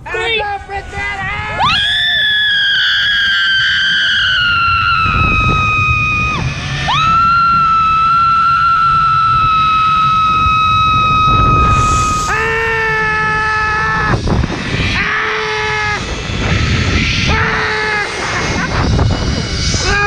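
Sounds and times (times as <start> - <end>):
lower voice crying out: 0.0 - 14.2, 14.8 - 16.1, 17.2 - 18.7, 19.8 - 20.0
wind rumble on microphone: 0.0 - 20.0
woman screaming: 0.1 - 14.2.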